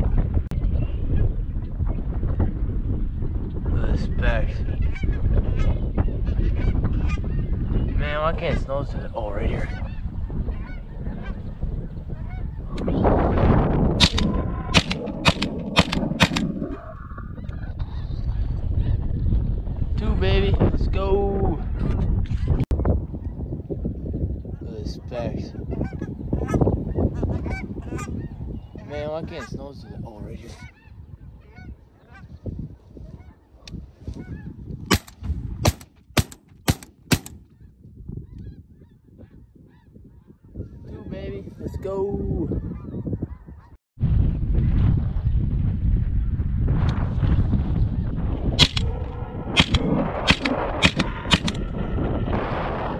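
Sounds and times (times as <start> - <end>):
shotgun blasts: 14.0 - 16.6, 34.9 - 37.4, 48.6 - 48.9, 49.6 - 51.6.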